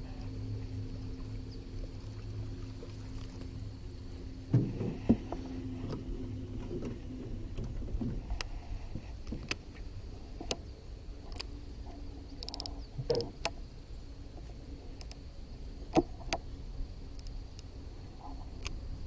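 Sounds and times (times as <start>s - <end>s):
low motor hum: 0.0s - 19.0s
fishing reel clicks: 12.4s - 13.3s
light ticks: 14.4s - 15.2s, 18.5s - 18.8s.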